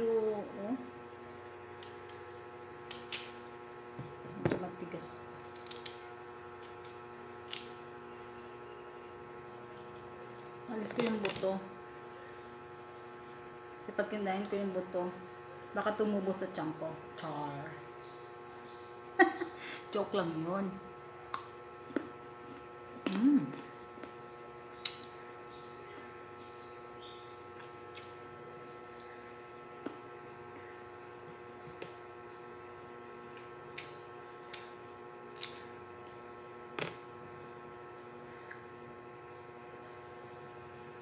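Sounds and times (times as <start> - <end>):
electrical hum: 0.0 - 41.0
guava crunching: 5.4 - 8.8, 33.3 - 37.1
person humming mm: 23.0 - 23.7.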